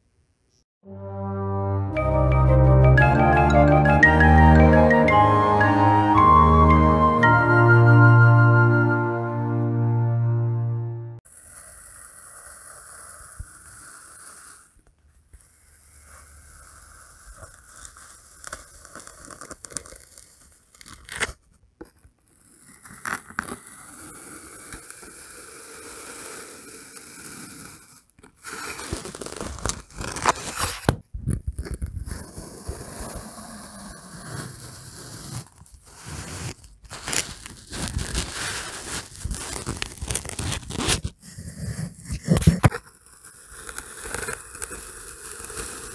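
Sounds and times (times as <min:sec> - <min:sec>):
knife scraping through sand: 0:32.3 - 0:39.4.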